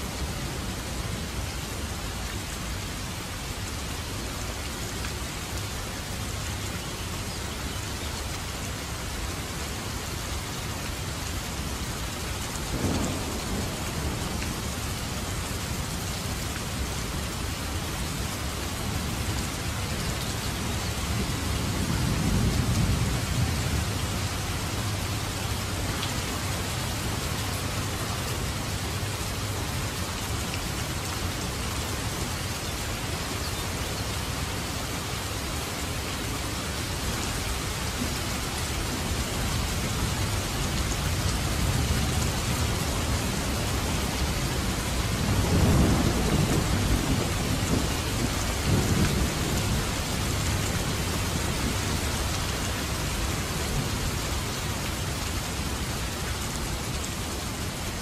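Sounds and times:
steady rain: 0.0s - 58.0s
thunder rumbling: 12.7s - 14.9s, 43.2s - 51.7s.

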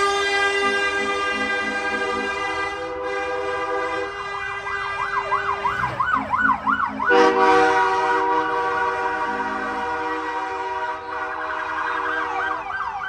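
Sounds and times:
air horn blast: 0.0s - 5.8s, 7.0s - 12.6s
electronic siren yelping: 4.8s - 7.4s, 11.3s - 13.0s.

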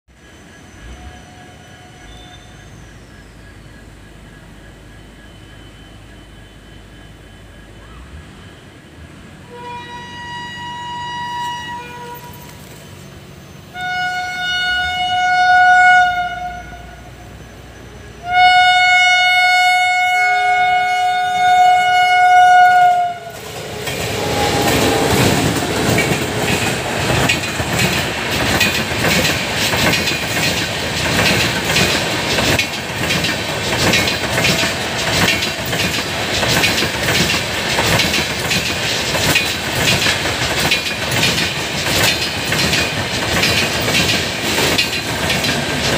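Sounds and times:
train coaches rumbling past: 0.1s - 45.9s
train horn blasts: 9.4s - 12.6s, 13.6s - 27.0s
wheels clickety-clack over rail joints: 17.7s - 45.9s.

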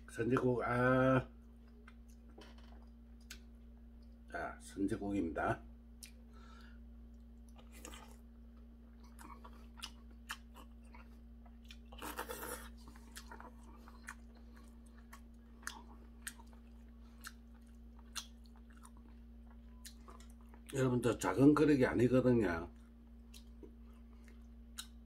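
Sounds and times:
man chewing soup: 1.4s - 4.3s, 6.0s - 20.8s, 22.7s - 25.0s.

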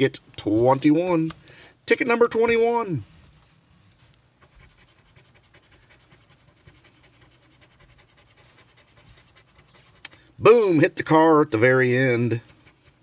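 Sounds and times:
coin scratching lottery ticket: 4.4s - 10.0s, 12.0s - 13.0s.

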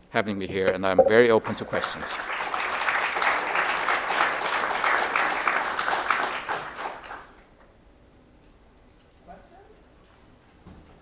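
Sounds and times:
audience applauding: 1.3s - 7.4s.

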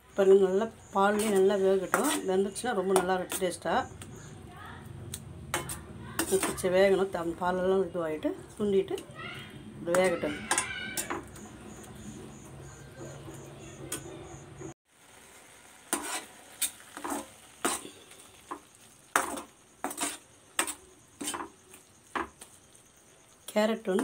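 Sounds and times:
metal spoon scraping a steel pan: 1.1s - 3.6s, 5.5s - 7.0s, 9.9s - 11.2s, 15.9s - 18.2s, 19.1s - 21.5s.

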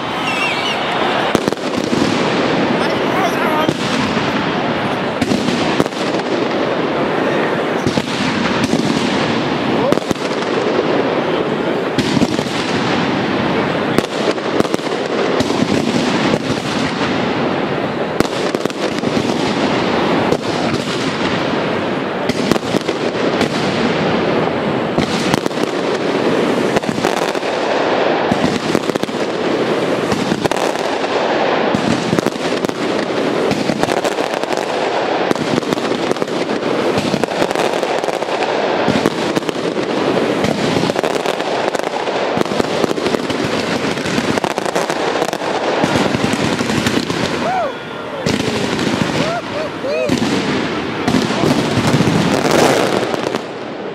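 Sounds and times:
fireworks bangs and crackles: 0.0s - 53.9s.

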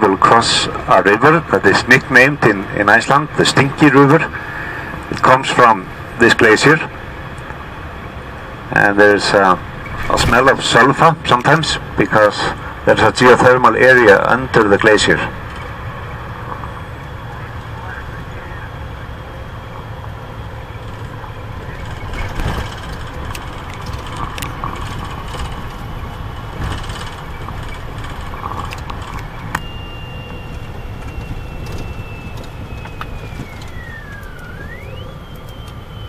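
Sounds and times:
vehicle rumble on gravel: 8.7s - 36.0s
thin high whistle: 29.5s - 36.0s.

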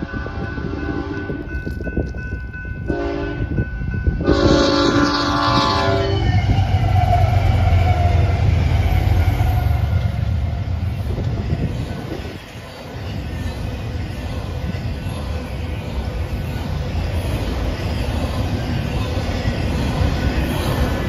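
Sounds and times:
locomotive air horn: 2.9s - 3.5s, 4.2s - 8.3s.

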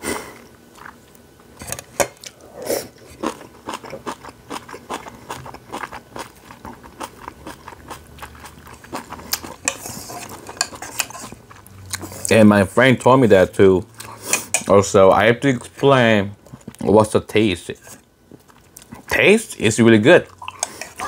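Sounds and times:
person chewing noodles: 0.0s - 1.2s, 2.2s - 12.3s, 14.0s - 14.6s, 16.4s - 16.9s, 18.3s - 19.1s, 20.3s - 21.0s.

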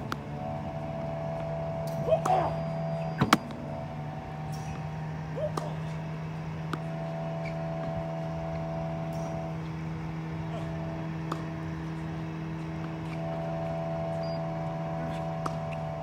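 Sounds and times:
ball machine humming: 0.0s - 16.0s
tennis balls knocking: 5.5s - 9.8s, 10.7s - 16.0s.

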